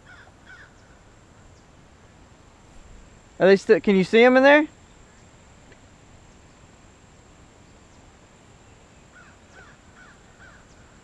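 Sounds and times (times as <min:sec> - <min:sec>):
bird calls: 0:00.0 - 0:02.2, 0:07.6 - 0:11.0
faint high-pitched hum: 0:00.0 - 0:11.0.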